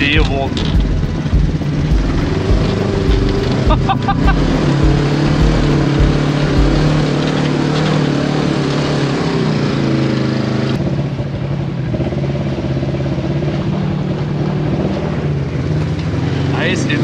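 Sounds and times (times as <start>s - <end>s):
rushing noise: 0.0s - 9.0s
vehicle engine running: 0.0s - 17.0s.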